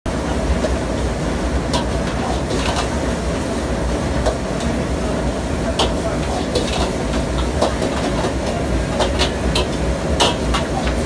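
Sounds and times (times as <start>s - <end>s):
gas burner rushing: 0.1s - 11.0s
metal ladle clanking against wok: 5.7s - 10.9s.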